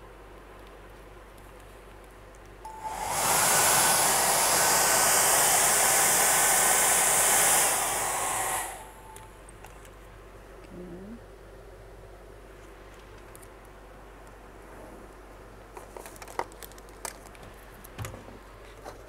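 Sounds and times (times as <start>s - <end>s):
hair dryer blowing: 2.7s - 9.2s.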